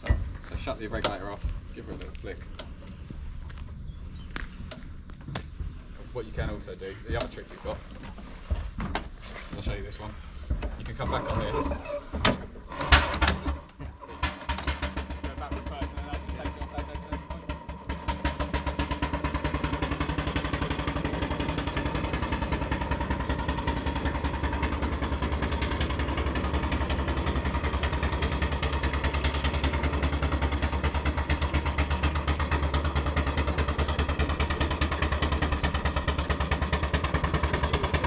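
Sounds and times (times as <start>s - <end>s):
steam engine running: 12.7s - 38.0s.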